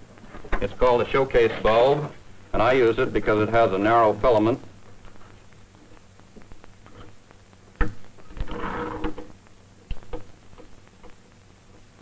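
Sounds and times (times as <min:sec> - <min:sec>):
steady low hum: 0:00.0 - 0:12.0
scraping rub: 0:08.3 - 0:09.2.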